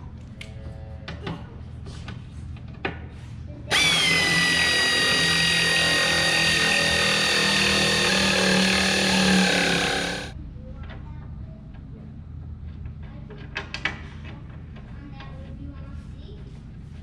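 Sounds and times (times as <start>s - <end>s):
power tool motor whining: 3.7s - 10.4s.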